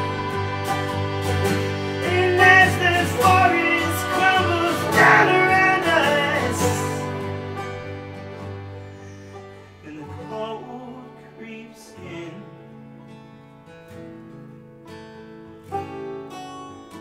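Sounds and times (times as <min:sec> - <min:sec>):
voices singing: 0:00.0 - 0:07.6
harmonium chords: 0:00.0 - 0:09.8
banjo picked: 0:00.0 - 0:11.6
acoustic guitar strummed: 0:00.0 - 0:17.0.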